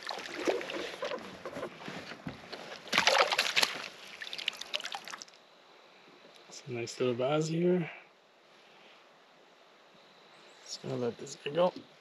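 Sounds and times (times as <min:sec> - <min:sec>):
water splashing and sloshing: 0:00.0 - 0:05.4.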